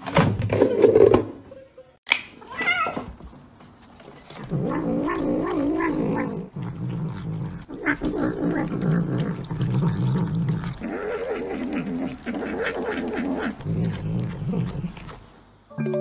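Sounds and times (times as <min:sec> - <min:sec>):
cat moaning: 0:04.3 - 0:15.2
cat growling: 0:04.3 - 0:15.3.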